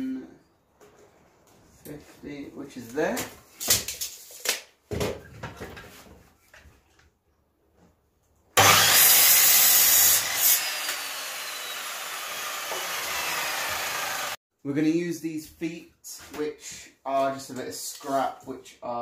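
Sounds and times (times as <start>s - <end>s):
miter saw cutting wood: 8.6s - 14.4s
saw blade winding down whine: 8.6s - 14.4s.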